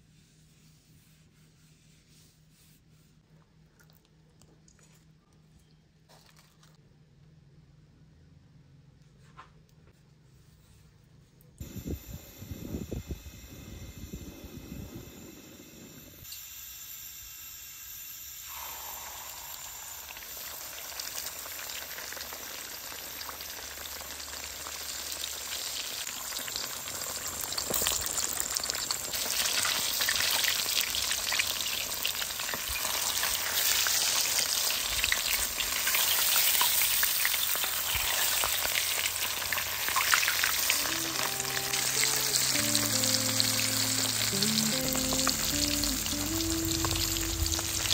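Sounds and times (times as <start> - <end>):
hot oil sizzling in a pan: 13.1 - 47.9.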